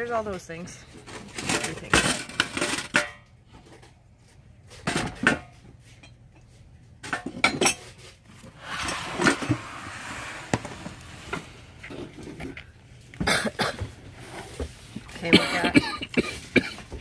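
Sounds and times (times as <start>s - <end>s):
objects clattering into plastic basket: 1.0s - 3.2s.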